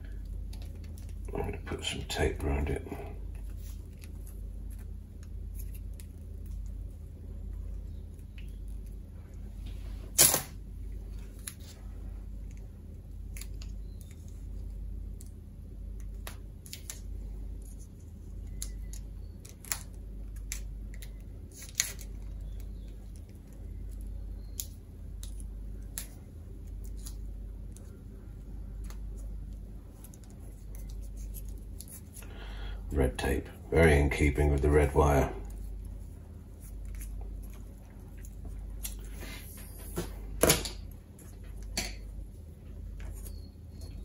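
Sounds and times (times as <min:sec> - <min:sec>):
low hum: 0:00.0 - 0:44.0
tape peeling and crackling: 0:03.3 - 0:09.4, 0:10.1 - 0:32.3, 0:35.4 - 0:39.2.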